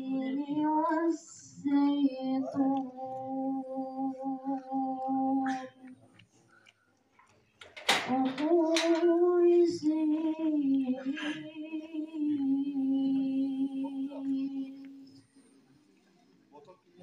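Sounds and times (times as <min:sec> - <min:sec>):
person singing through loudspeaker: 0:00.0 - 0:05.9, 0:07.9 - 0:15.2.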